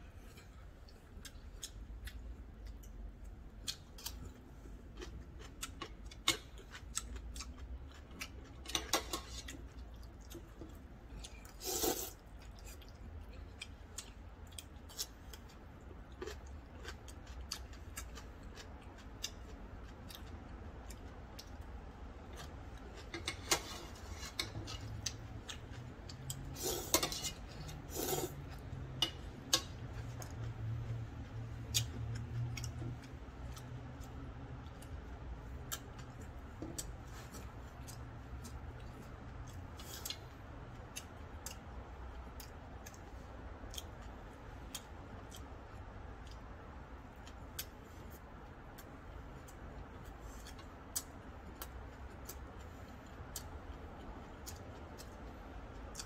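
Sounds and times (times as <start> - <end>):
chewing and mouth clicks: 0.8 - 23.6, 24.3 - 56.0
slurping noodles: 11.5 - 12.2, 27.8 - 28.4.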